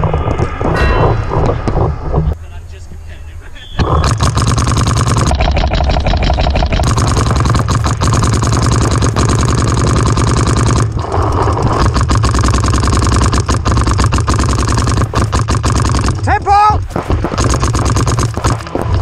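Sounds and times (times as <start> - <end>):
paintball markers firing: 3.8 - 19.0.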